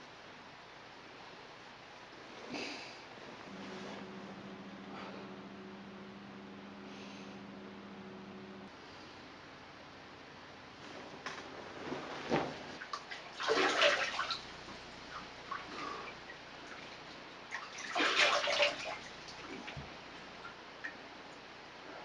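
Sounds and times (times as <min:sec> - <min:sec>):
water splashing onto a face: 0:12.9 - 0:14.5, 0:17.5 - 0:19.8.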